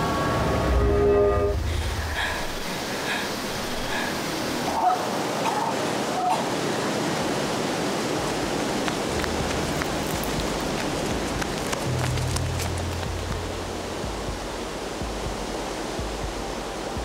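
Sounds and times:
low hum: 0:00.0 - 0:04.6, 0:08.2 - 0:17.0
stream running water: 0:00.0 - 0:17.0.

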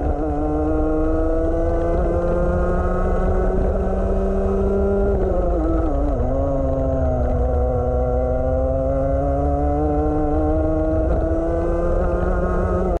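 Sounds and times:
kart engine revving: 0:00.0 - 0:13.0.

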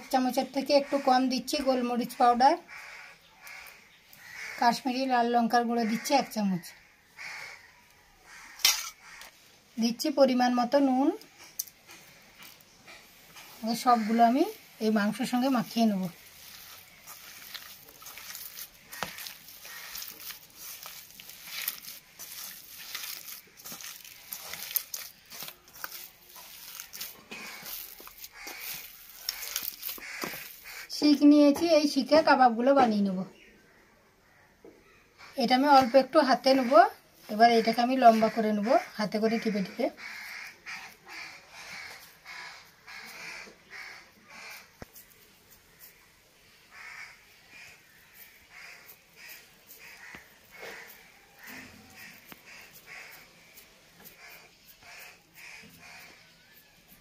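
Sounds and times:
crow cawing: 0:00.7 - 0:01.4, 0:02.6 - 0:04.9, 0:05.8 - 0:09.4, 0:13.6 - 0:31.0, 0:33.7 - 0:44.9, 0:45.7 - 0:56.7
hand kneading minced meat: 0:09.1 - 0:32.4, 0:35.4 - 0:57.0.

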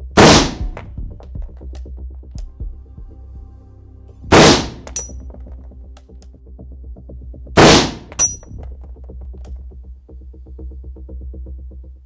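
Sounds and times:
electronic music with beat: 0:00.0 - 0:05.0
rifle bursts: 0:00.2 - 0:00.7, 0:04.3 - 0:05.1, 0:07.6 - 0:08.4
metallic clink with ringing: 0:04.8 - 0:05.2, 0:08.2 - 0:08.5.

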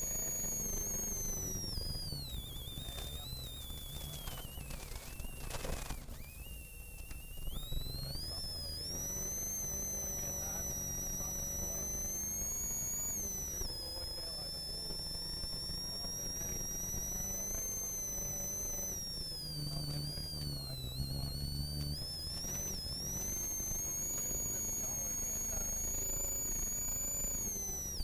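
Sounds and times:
rally car engine under load: 0:00.0 - 0:28.0
turbo whine: 0:00.0 - 0:28.0.

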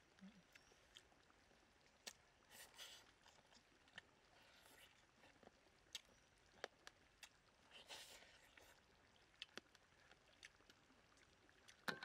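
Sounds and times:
lip smacks and clicks: 0:09.4 - 0:10.8.

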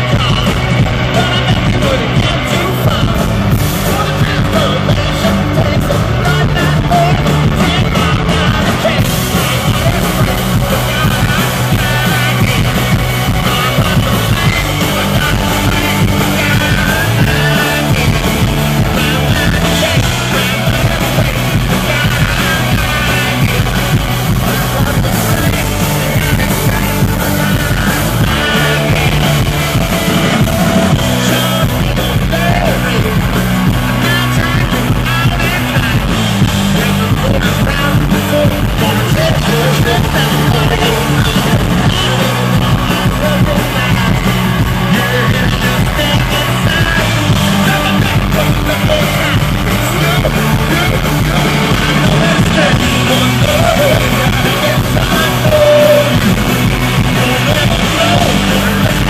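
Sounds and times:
bass guitar: 0:00.0 - 0:59.0
drums: 0:00.0 - 0:59.0
electric guitar: 0:00.0 - 0:59.0
lead vocal singing and shouting: 0:00.0 - 0:59.0.

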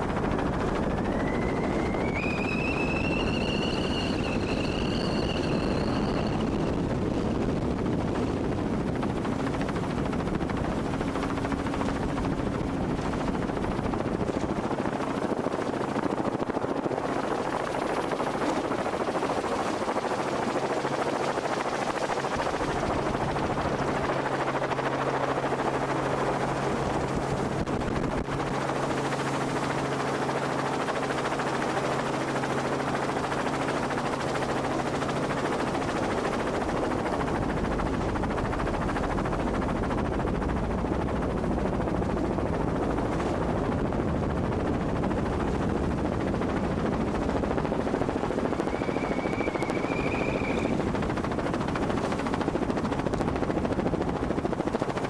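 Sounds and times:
helicopter rotor and engine: 0:00.0 - 0:55.0.

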